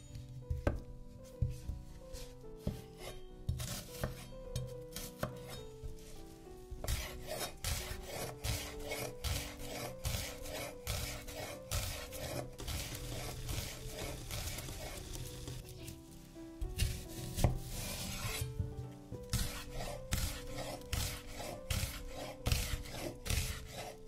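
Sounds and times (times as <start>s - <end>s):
knife chopping onion on wooden board: 3.5s - 5.6s, 6.8s - 15.6s, 16.8s - 18.5s, 19.3s - 23.9s.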